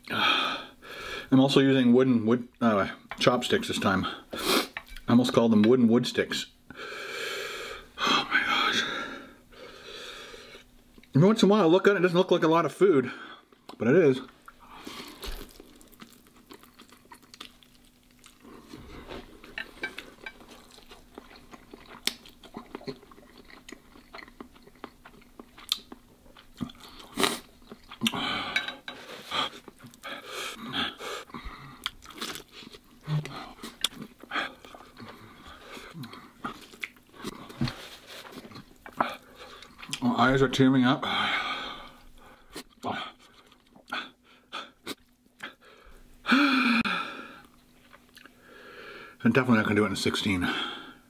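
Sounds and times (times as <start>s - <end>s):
man slurping and chewing: 26.6s - 40.0s.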